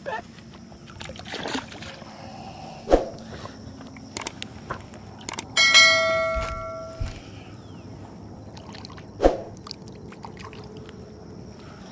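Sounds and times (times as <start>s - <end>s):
mouse clicks: 4.2s - 4.5s, 5.3s - 5.5s
bright ringing chime: 5.6s - 7.2s.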